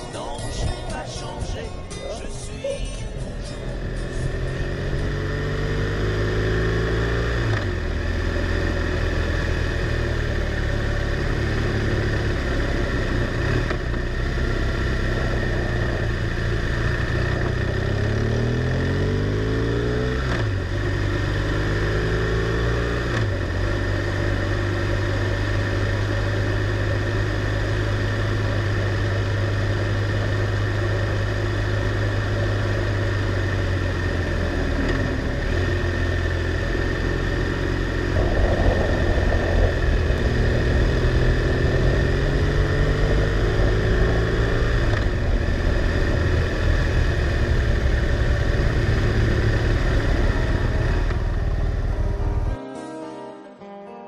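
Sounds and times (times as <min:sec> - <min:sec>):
motorcycle engine revving: 0:03.1 - 0:52.6
steady rushing noise: 0:37.6 - 0:52.2.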